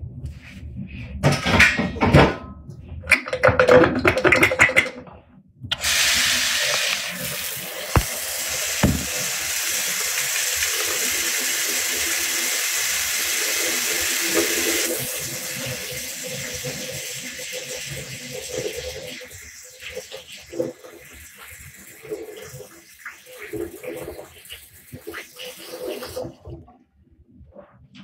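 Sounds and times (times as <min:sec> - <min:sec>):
water running from a tap: 0:05.7 - 0:26.2
small knocks: 0:08.8 - 0:09.1.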